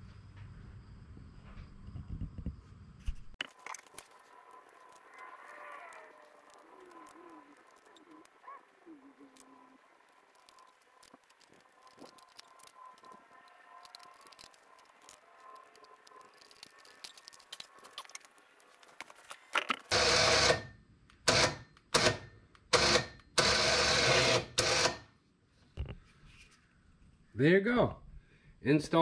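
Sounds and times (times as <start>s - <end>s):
winch motor whine: 22.7s - 25.0s.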